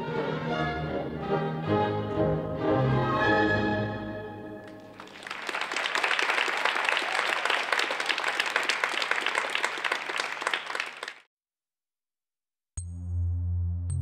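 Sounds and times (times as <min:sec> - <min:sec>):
audience applauding: 0:04.6 - 0:11.3.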